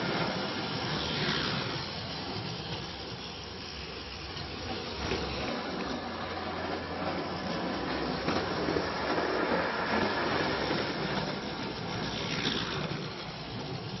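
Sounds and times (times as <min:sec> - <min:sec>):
clockwork toy train rattling on track: 0:00.0 - 0:14.0.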